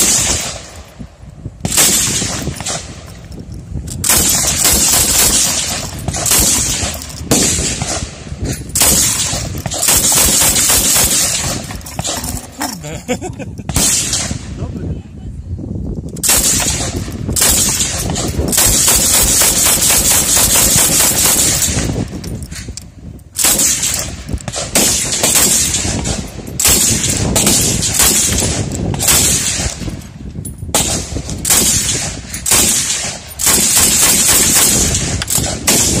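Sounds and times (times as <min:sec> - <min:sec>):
machine gun firing: 0:00.0 - 0:00.7, 0:01.7 - 0:02.9, 0:04.0 - 0:08.1, 0:08.8 - 0:12.6, 0:13.7 - 0:14.4, 0:16.2 - 0:22.1, 0:23.4 - 0:30.0, 0:30.7 - 0:36.0.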